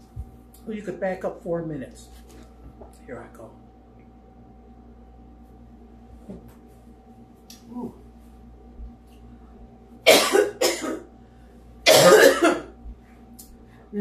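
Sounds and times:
woman coughing: 0:10.1 - 0:11.1, 0:11.9 - 0:12.7.

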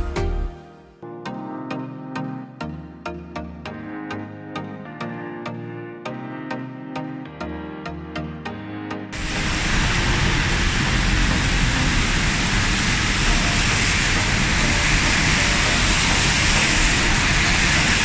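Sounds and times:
heavy rain falling: 0:09.2 - 0:18.0.

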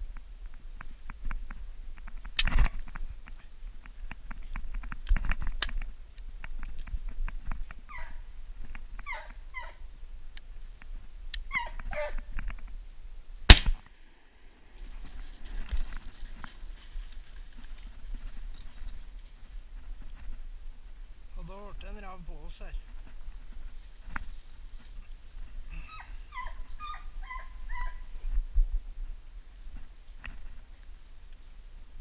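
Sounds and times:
hound baying: 0:07.9 - 0:08.2, 0:25.8 - 0:28.1
shotgun shot: 0:13.5 - 0:13.9
footsteps on forest floor: 0:14.7 - 0:21.3.

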